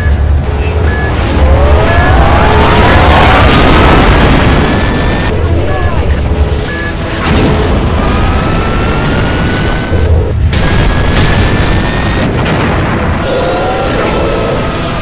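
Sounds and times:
jet engine noise: 0.0s - 15.0s
booms: 7.2s - 15.0s.

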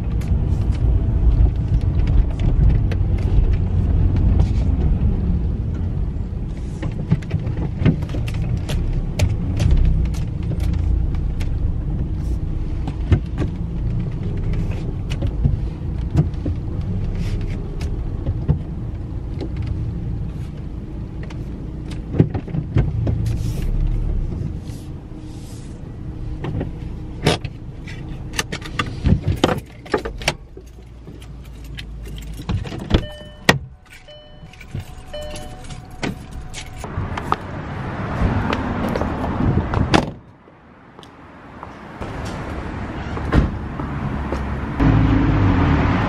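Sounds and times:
car door opening: 31.4s - 37.5s, 43.2s - 43.6s
short repeating tone: 33.0s - 35.7s.

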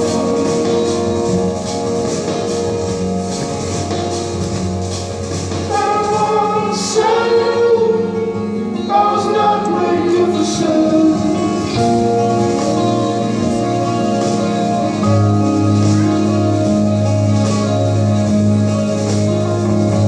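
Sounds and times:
sustained instrumental chords: 0.0s - 20.0s
person singing: 5.7s - 20.0s.

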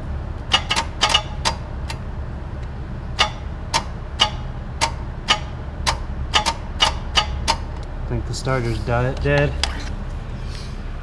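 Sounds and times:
steady low hum: 0.0s - 11.0s
starter circuit clicking: 3.2s - 7.7s.

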